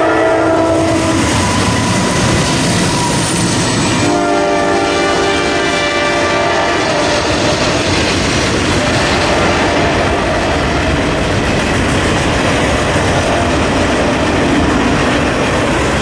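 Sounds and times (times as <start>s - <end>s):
train air horn blasts: 0.0s - 2.1s, 4.0s - 7.6s
train rumbling on rails: 0.0s - 16.0s.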